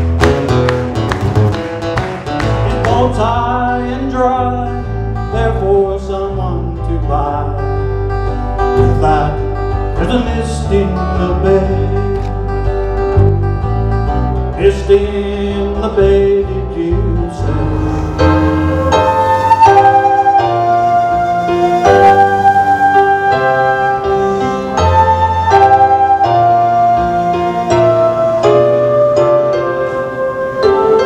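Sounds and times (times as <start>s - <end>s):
acoustic guitar country tune: 0.0s - 31.0s
electric bass guitar: 0.0s - 31.0s
keyboard: 0.0s - 31.0s
flute: 17.7s - 31.0s.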